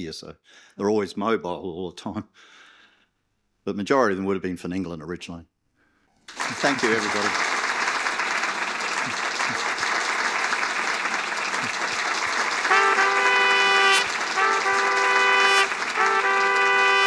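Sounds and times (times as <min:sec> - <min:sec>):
audience applauding: 0:06.3 - 0:17.0
music with long held notes: 0:12.6 - 0:17.0.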